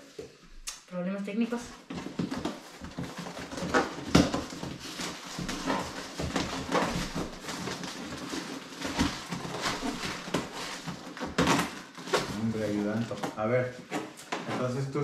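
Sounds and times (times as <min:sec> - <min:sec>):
knocks and rustles: 0:01.6 - 0:15.0
foam squeaking against cardboard: 0:02.1 - 0:13.5.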